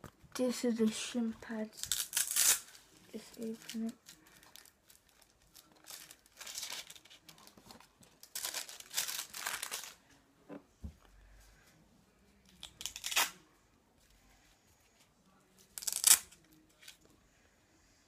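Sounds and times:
plastic packaging crinkling and tearing: 1.7s - 10.0s, 12.6s - 13.4s, 15.8s - 17.0s.

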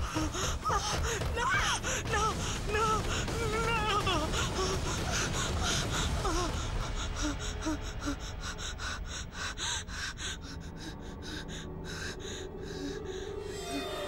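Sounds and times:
woman panting and gasping: 0.0s - 13.5s.

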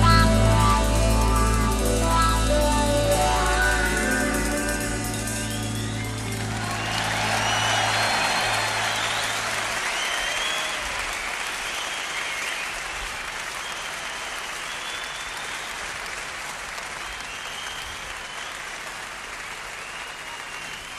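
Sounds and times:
high whistles: 2.4s - 15.9s, 17.0s - 18.6s, 19.8s - 20.9s
audience applauding: 5.4s - 20.9s.

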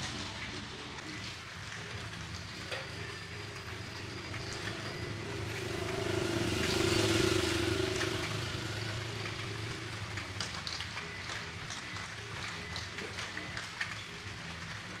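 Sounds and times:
steady low hum: 0.6s - 13.2s
vehicle engine passing by: 3.5s - 11.4s.

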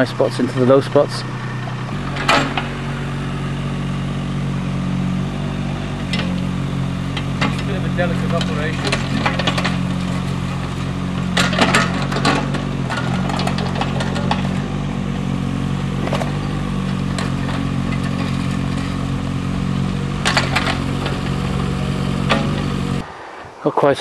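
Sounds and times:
mini digger engine running: 0.0s - 23.4s
metal clanks and rattles: 0.2s - 3.2s, 7.1s - 14.8s, 16.0s - 19.2s, 19.9s - 23.0s.

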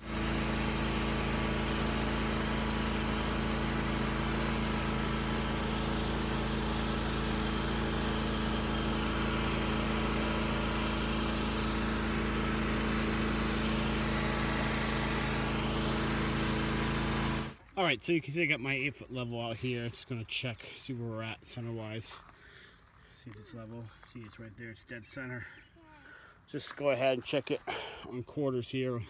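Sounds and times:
lawn tractor engine running: 0.0s - 17.9s.

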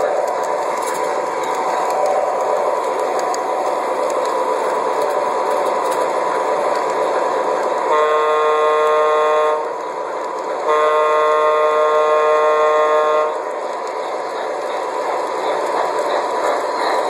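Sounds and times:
model train rolling whir: 0.0s - 17.0s
model train horn: 7.9s - 9.8s, 10.6s - 13.4s.

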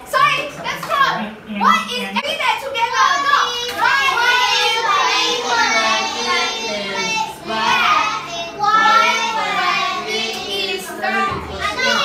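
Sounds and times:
children calling out: 2.8s - 12.0s.

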